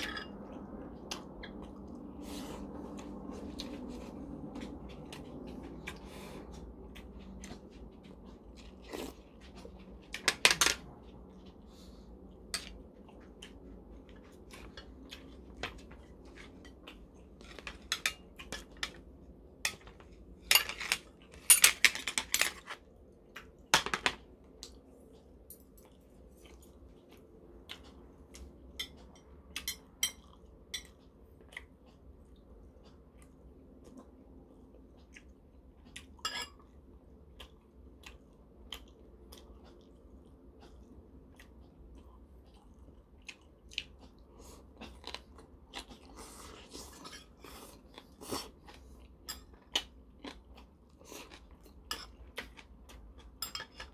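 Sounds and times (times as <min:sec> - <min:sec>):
utensils clinking on ceramic bowls: 0:00.0 - 0:00.5, 0:19.7 - 0:22.7, 0:36.2 - 0:36.6, 0:53.4 - 0:53.9.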